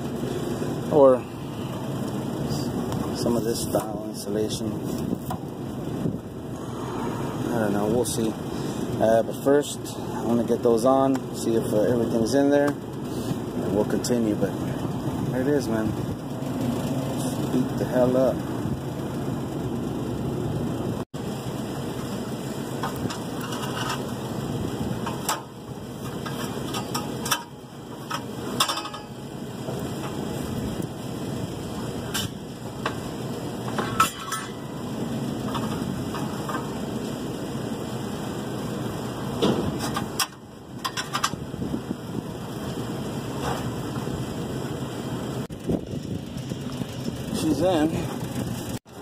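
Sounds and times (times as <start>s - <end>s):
low mechanical rumble: 0.0s - 49.0s
metallic knocks and scrapes: 22.8s - 24.1s, 25.0s - 29.2s, 33.6s - 34.8s, 35.4s - 36.8s, 39.4s - 41.4s.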